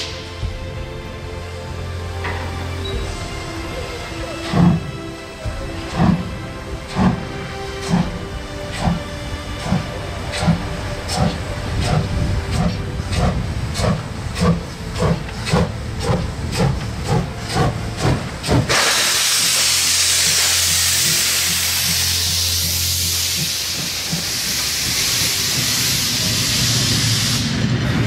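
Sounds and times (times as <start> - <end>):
steam hissing: 0.0 - 0.6, 3.0 - 28.0
steam locomotive chuffing: 2.0 - 28.0.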